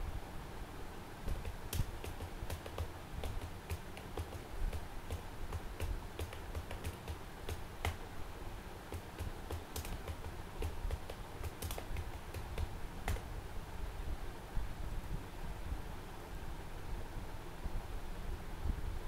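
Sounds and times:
keyboard keystroke clicks: 1.3 - 8.0, 8.9 - 13.3.

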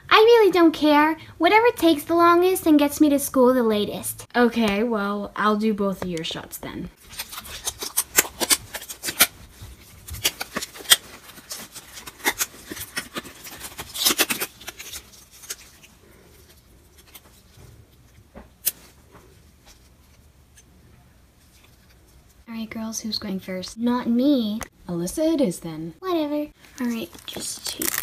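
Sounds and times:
plastic wrapper crinkling: 7.0 - 17.6, 26.6 - 28.0
disposable gloves pulled on: 26.6 - 28.0.

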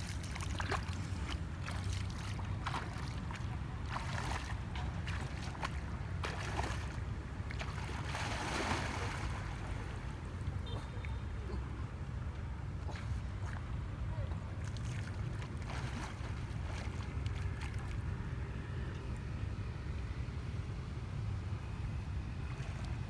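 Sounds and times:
steady low rumble: 0.0 - 10.6
water splashing around legs: 0.0 - 11.2, 14.3 - 18.1.

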